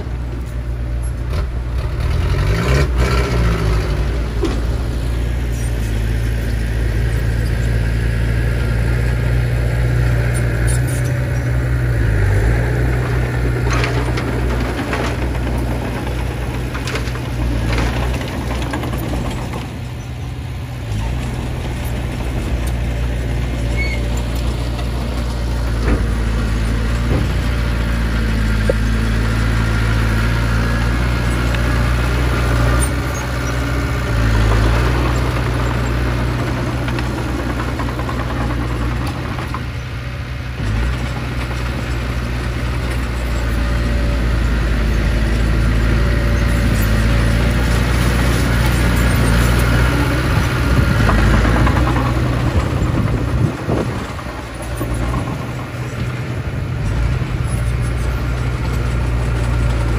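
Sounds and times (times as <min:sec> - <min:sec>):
bulldozer pushing dirt: 0:00.0 - 0:59.9
diesel engines droning: 0:00.0 - 0:59.9
truck tipping soil: 0:10.4 - 0:43.5.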